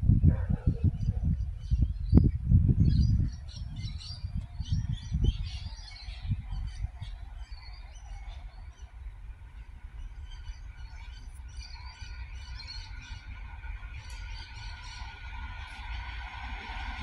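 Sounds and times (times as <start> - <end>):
low rumble: 0.0 - 6.9, 8.5 - 17.0
small birds chirping: 0.3 - 13.4
diesel train hum and whine: 6.3 - 17.0.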